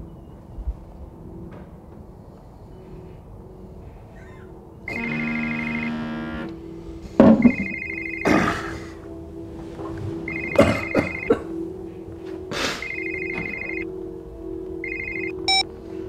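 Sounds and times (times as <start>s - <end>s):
low music drone: 0.0s - 16.0s
mobile phone ringtone trilling: 4.9s - 6.5s, 7.4s - 8.4s, 10.3s - 11.4s, 12.8s - 13.9s, 14.8s - 15.7s.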